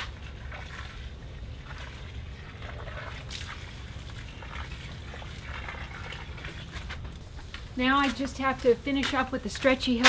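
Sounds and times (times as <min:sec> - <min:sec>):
water trickling from watering can: 0:00.0 - 0:07.5.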